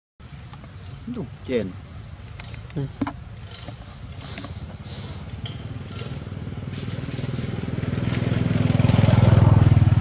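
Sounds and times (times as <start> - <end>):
small engine passing: 2.5 - 10.0.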